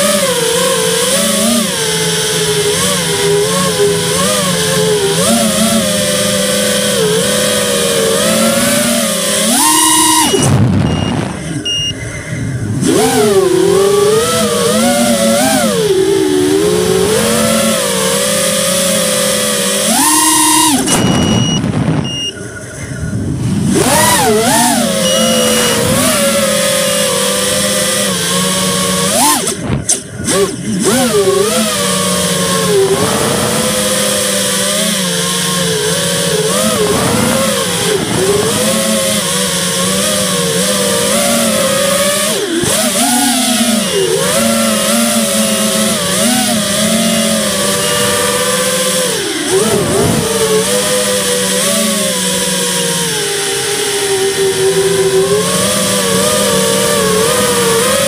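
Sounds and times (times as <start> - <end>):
remote control car motor whining: 0.0 - 58.0.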